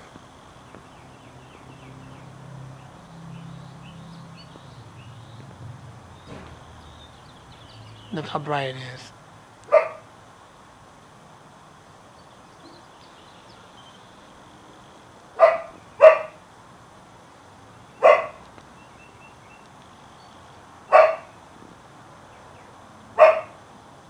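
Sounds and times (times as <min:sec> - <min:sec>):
dog barking: 0:09.7 - 0:10.1, 0:15.4 - 0:16.4, 0:18.0 - 0:18.4, 0:20.9 - 0:21.3, 0:23.2 - 0:23.6.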